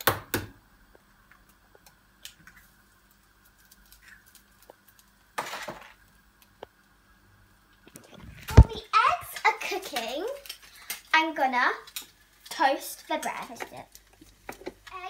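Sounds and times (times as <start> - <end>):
egg sizzling in hot pan: 8.8 - 15.0.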